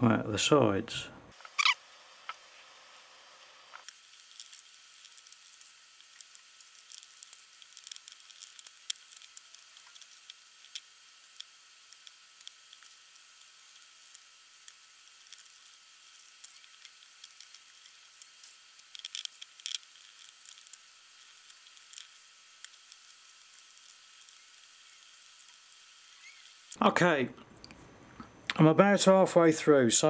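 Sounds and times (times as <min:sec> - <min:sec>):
sticky crackles and small clicks: 0:03.7 - 0:25.8.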